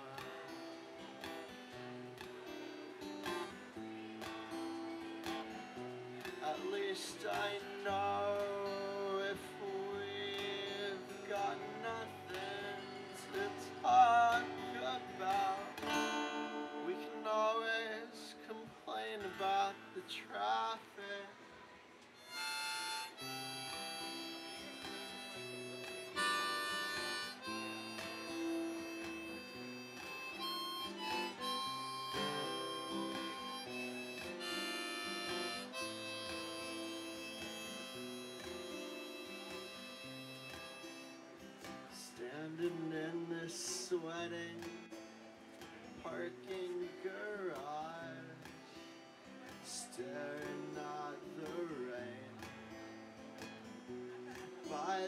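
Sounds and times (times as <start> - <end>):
acoustic guitar strumming: 0.0 - 21.4, 22.2 - 55.0
harmonica playing: 22.2 - 41.3.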